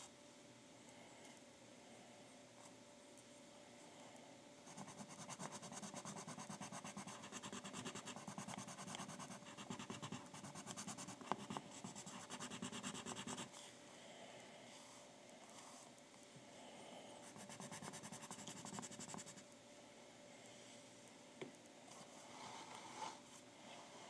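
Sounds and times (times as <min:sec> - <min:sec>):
pencil scratching on paper: 0:04.7 - 0:13.5, 0:17.3 - 0:19.4.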